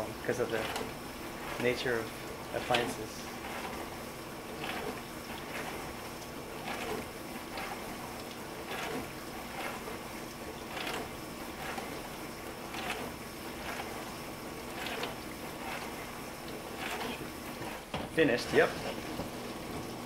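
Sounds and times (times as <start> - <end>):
dishwasher water rushing: 0.0 - 20.0.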